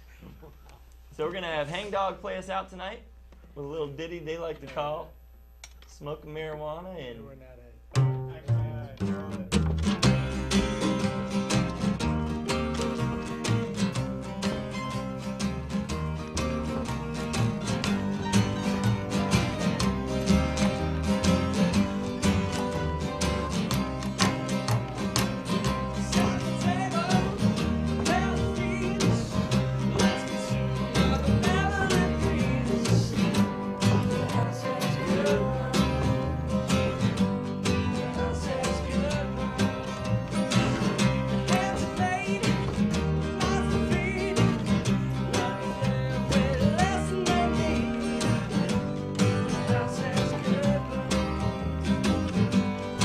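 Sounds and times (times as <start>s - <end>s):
guitar: 0.0s - 53.0s
bass notes: 5.1s - 53.0s
country band playing: 7.9s - 53.0s
steady drum beat: 15.9s - 51.0s.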